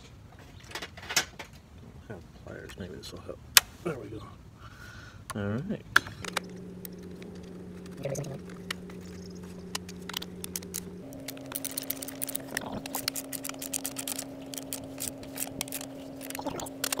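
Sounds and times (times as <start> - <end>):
steady hum: 5.9 - 17.0.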